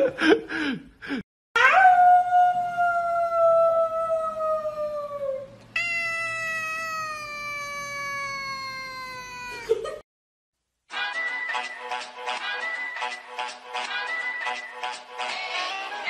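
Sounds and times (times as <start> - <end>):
cat meowing: 5.7 - 9.8.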